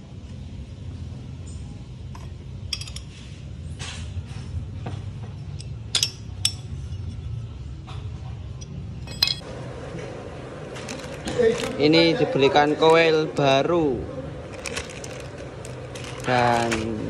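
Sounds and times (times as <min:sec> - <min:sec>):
metal parts clinking: 0:08.6 - 0:09.4, 0:10.8 - 0:11.8, 0:14.5 - 0:16.9
plastic bag rustling: 0:10.7 - 0:12.0, 0:14.4 - 0:17.0.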